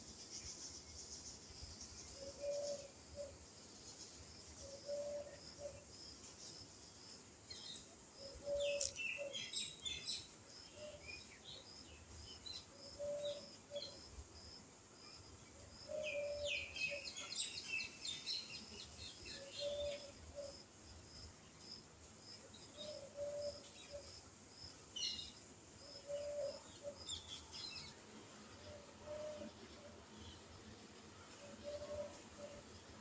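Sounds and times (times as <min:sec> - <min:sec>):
dove cooing: 0:02.2 - 0:03.4, 0:04.6 - 0:05.8, 0:08.2 - 0:09.5, 0:13.0 - 0:13.8, 0:15.9 - 0:17.1, 0:19.4 - 0:20.5, 0:22.8 - 0:24.1, 0:25.9 - 0:27.0, 0:28.6 - 0:30.0, 0:31.4 - 0:32.7
small birds chirping: 0:07.5 - 0:14.0.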